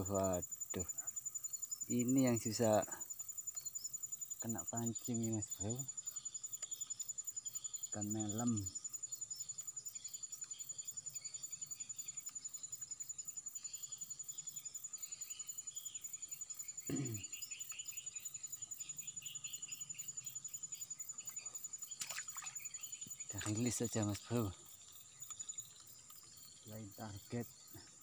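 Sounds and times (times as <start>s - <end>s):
insects chirping: 0.0s - 28.0s
scattered chirping calls: 0.0s - 28.0s.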